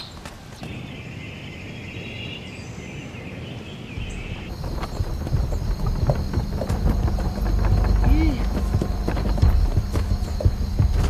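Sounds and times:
night insects chirring: 0.0s - 11.0s
high-pitched insect chorus: 0.6s - 11.0s
low rumble: 3.9s - 11.0s.

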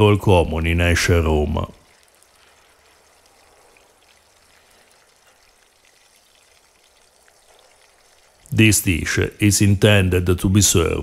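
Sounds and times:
egg mixture sizzling in a pan: 1.8s - 8.5s
small ticks: 1.8s - 8.5s.

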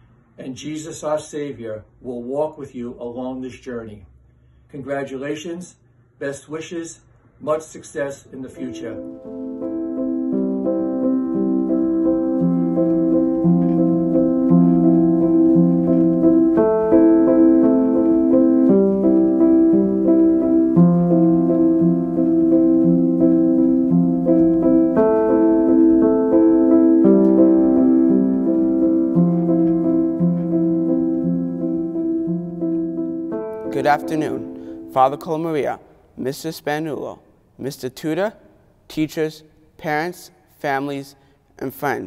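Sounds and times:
soft keyboard music: 8.4s - 35.8s.

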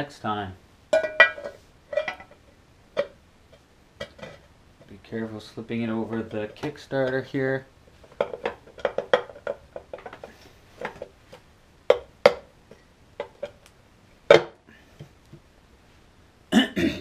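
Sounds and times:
metal cover clicking and tapping: 0.9s - 2.4s, 8.1s - 10.3s.

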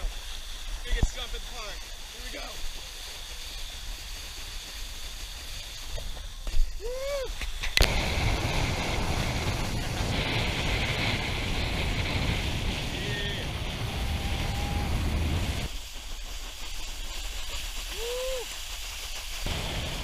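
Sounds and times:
water rushing and spraying: 4.8s - 20.0s
wind buffeting camera: 7.5s - 15.7s.

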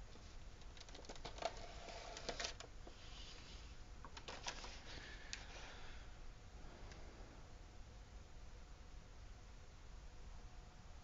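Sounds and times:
plastic packaging clicks and crinkles: 0.6s - 2.7s, 4.0s - 5.4s.

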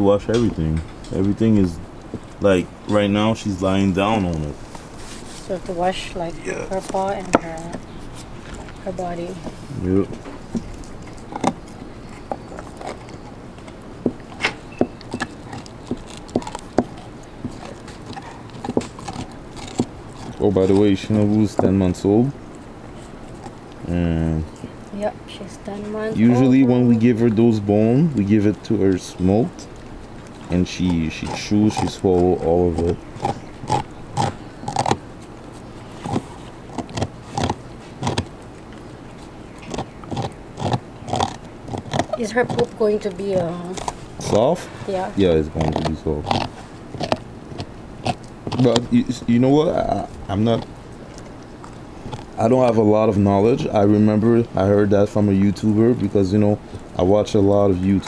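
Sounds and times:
dog teeth crunching on bone: 0.3s - 5.0s, 5.6s - 25.0s, 25.8s - 58.0s.

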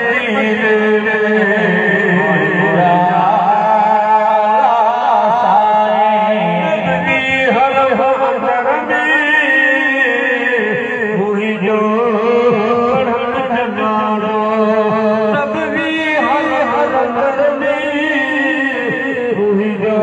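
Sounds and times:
steady held low drone: 0.0s - 9.0s
melodic singing or chanting: 0.0s - 20.0s.

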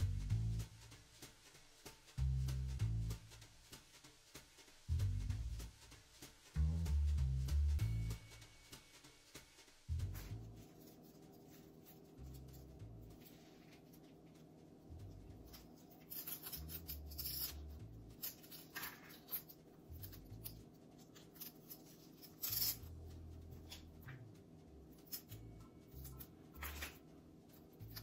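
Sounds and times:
plastic tape rubbing and rustling: 9.8s - 14.2s, 15.0s - 24.1s.

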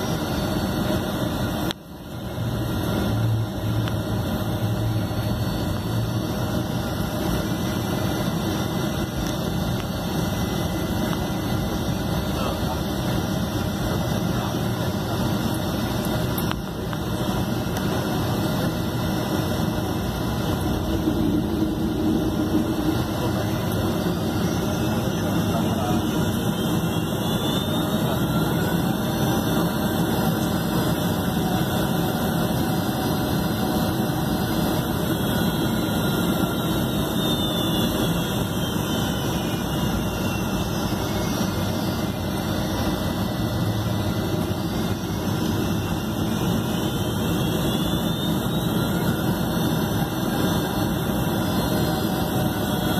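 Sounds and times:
faint high whine: 0.0s - 52.9s
jet engines rumbling in cabin: 0.0s - 52.9s.

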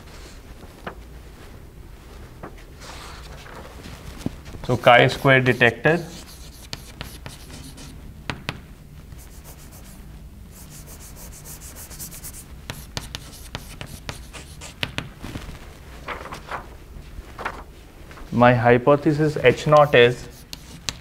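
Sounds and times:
chalk scratching on blackboard: 4.9s - 7.9s, 9.2s - 10.0s, 10.6s - 14.8s, 19.6s - 21.0s
chalk tapping on blackboard: 5.4s - 8.6s, 10.6s - 15.0s, 19.6s - 21.0s.

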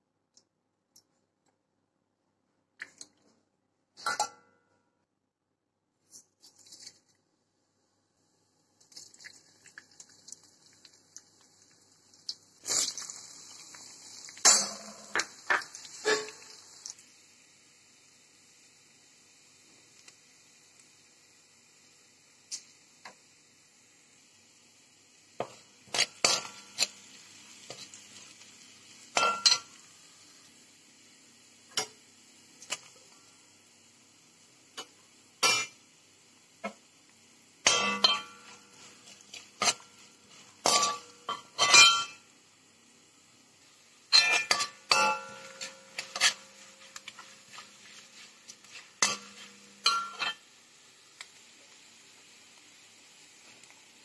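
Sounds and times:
spoon clinking against a wok: 29.2s - 29.7s, 37.6s - 38.6s, 40.6s - 42.2s, 44.1s - 47.2s, 49.0s - 50.4s.

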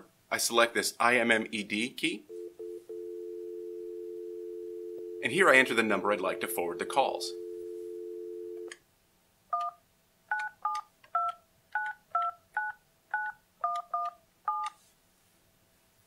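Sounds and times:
steady phone tone: 2.3s - 8.7s
phone keypad touch-tone beeps: 9.6s - 14.7s.

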